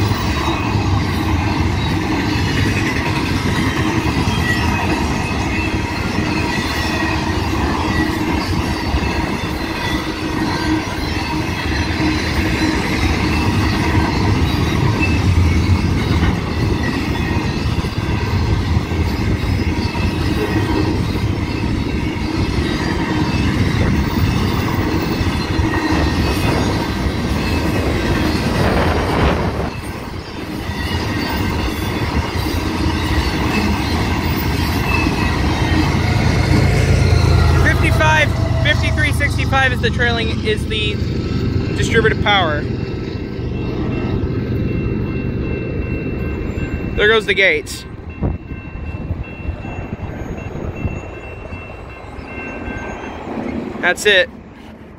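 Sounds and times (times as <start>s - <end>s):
freight train wheels clattering on rail: 0.0s - 54.9s
high-pitched wheel squeal: 4.0s - 38.9s.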